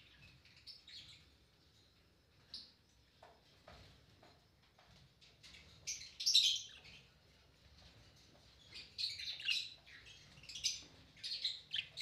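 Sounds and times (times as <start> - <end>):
budgerigars chirping: 8.8 - 12.0.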